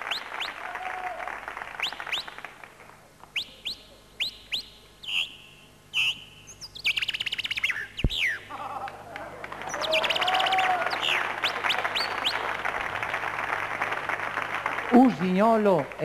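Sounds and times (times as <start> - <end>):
man imitating bird chirps: 3.4 - 8.9.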